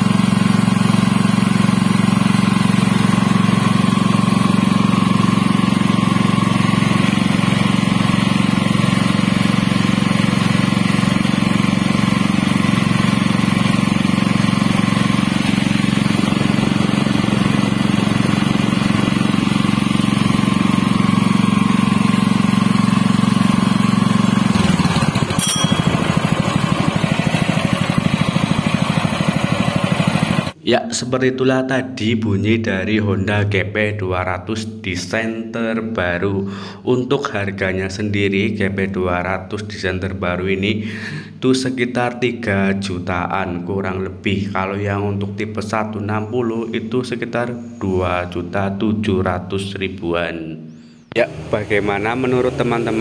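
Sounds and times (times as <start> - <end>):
petrol engine running: 0.0 - 30.6, 51.2 - 53.0.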